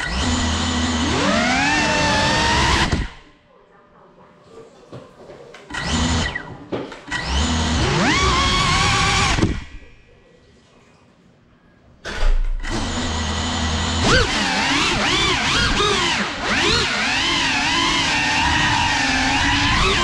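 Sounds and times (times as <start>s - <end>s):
drone motors whining: 0.0s - 3.2s, 12.6s - 20.0s.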